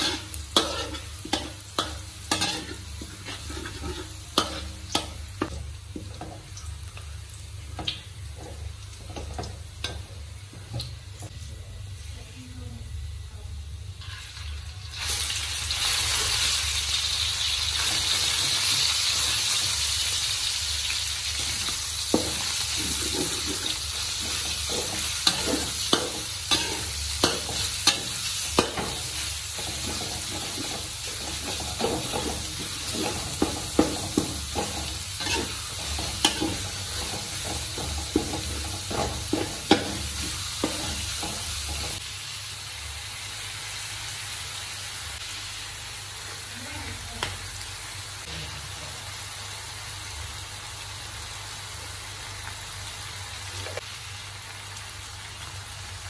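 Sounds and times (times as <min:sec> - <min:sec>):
metal spatula scraping a wok: 0:00.0 - 0:05.2, 0:22.2 - 0:42.0
meat sizzling in hot oil: 0:00.0 - 0:11.4, 0:13.8 - 0:56.0.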